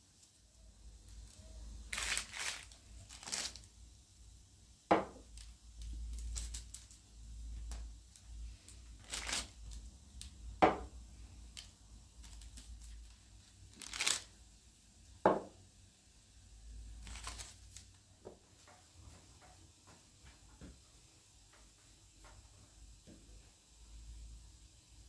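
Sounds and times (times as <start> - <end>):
rustling crinkling: 1.1 - 3.7, 5.3 - 7.1, 7.7 - 9.9, 11.5 - 14.4, 17.0 - 18.0.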